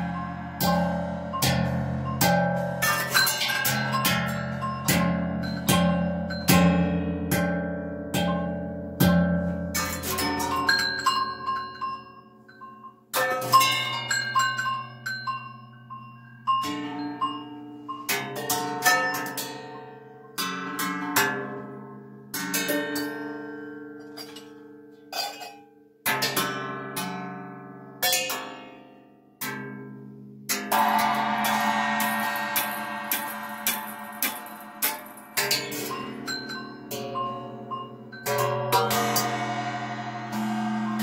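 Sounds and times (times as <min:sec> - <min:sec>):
steady low pitched tones: 0:00.0 - 0:05.6, 0:30.7 - 0:37.7, 0:38.8 - 0:41.0
metal percussion hits ringing: 0:00.0 - 0:15.4, 0:30.5 - 0:41.0.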